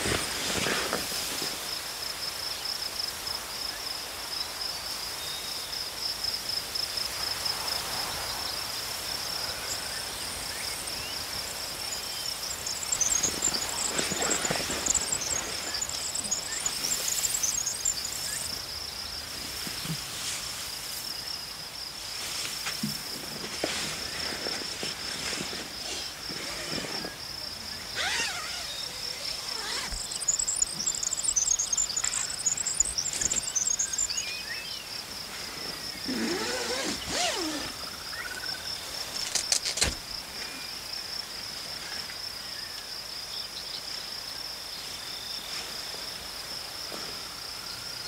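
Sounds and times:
soft rustles: 0.0s - 1.7s, 12.6s - 18.5s, 22.0s - 27.2s
insects trilling chorus: 0.0s - 48.0s.

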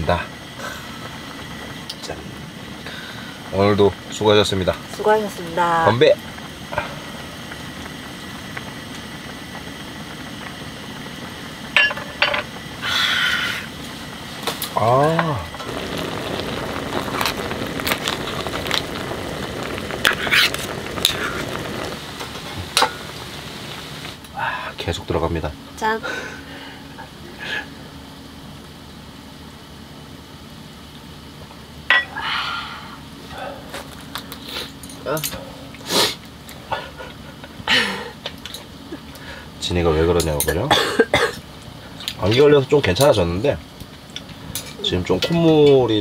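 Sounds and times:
steady low hum: 0.0s - 46.0s
brief hissing noise: 35.8s - 36.2s.

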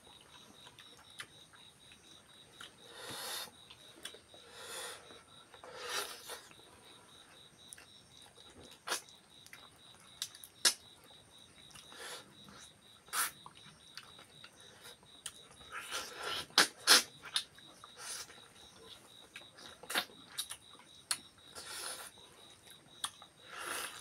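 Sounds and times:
wet chewing and lip-smacking: 3.6s - 4.4s, 19.0s - 24.0s.

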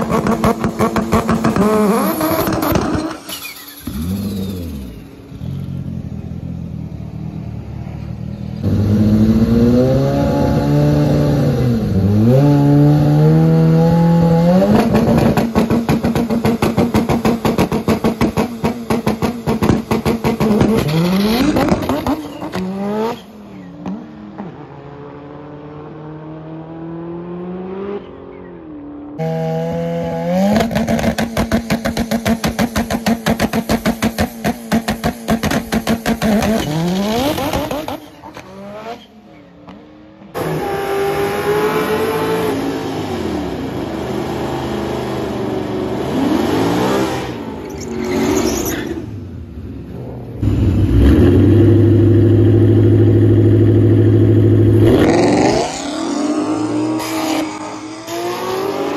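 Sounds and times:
race car engine revving away: 50.4s - 58.9s.

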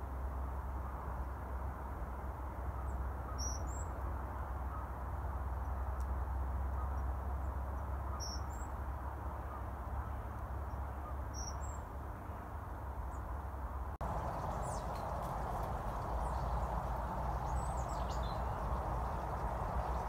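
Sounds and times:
low background rumble: 14.0s - 20.0s.

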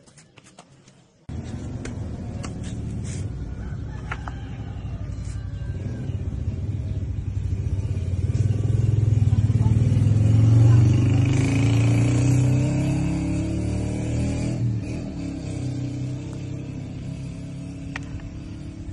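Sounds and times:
vehicle engine running: 1.3s - 11.9s, 14.8s - 18.9s.

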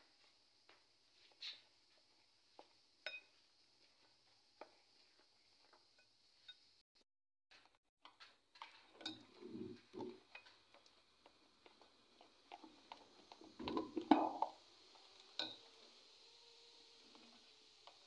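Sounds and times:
spoon scraping batter: 2.6s - 5.8s, 7.6s - 15.8s
spoon clinking on glass bowl: 3.1s - 3.3s.

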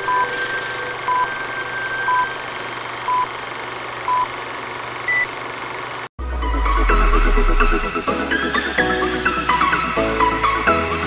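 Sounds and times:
countdown beeps: 0.0s - 2.4s.

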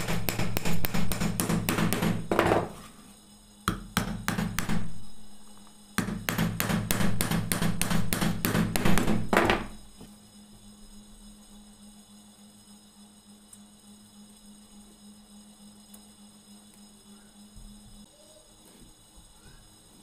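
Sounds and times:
hammer tapping nails into wood: 0.0s - 2.6s, 6.0s - 9.8s.

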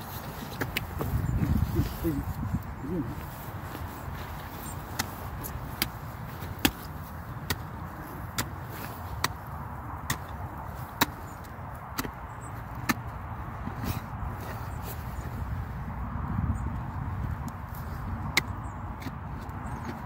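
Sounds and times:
spade chopping into soil: 4.9s - 12.2s.

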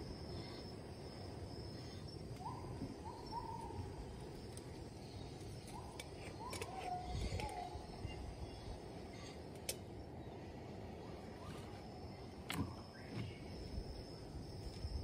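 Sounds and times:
bird hooting whistled calls: 2.4s - 4.0s, 5.7s - 8.8s.

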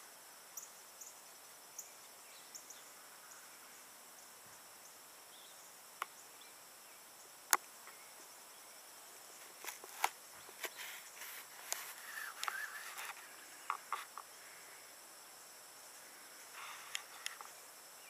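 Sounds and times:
faint outdoor hiss: 0.0s - 18.0s.

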